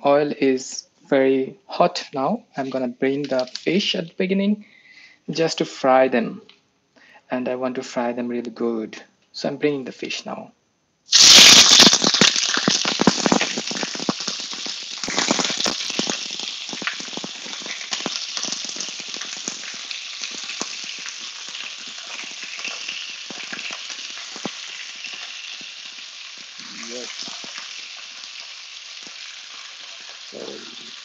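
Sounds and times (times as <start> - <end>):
fish sizzling in hot oil: 11.1 - 31.0.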